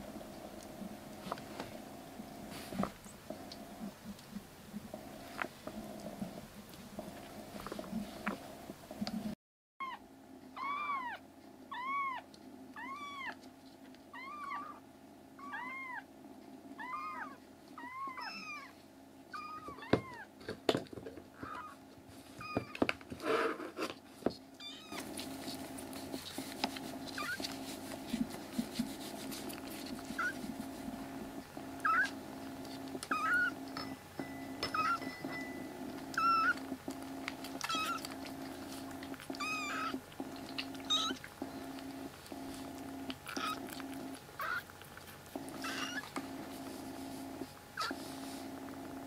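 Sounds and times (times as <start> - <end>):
kitten meowing: 10.6 - 12.2, 12.8 - 13.4, 14.2 - 14.8, 16.8 - 18.7, 19.3 - 20.3, 24.6 - 25.0, 31.8 - 32.1, 33.1 - 33.6, 36.1 - 36.6, 37.6 - 38.1, 39.3 - 40.0, 40.8 - 41.2, 43.3 - 43.7, 44.4 - 44.7, 45.6 - 46.1.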